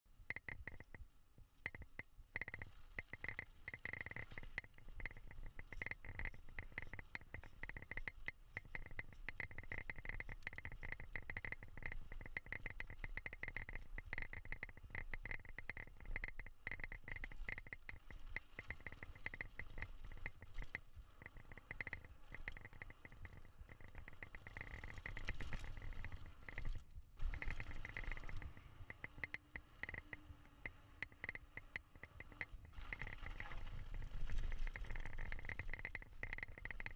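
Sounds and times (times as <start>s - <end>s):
bike rattling and clicking: 1.7s - 36.9s
bike tyre rumble on gravel: 32.7s - 35.9s.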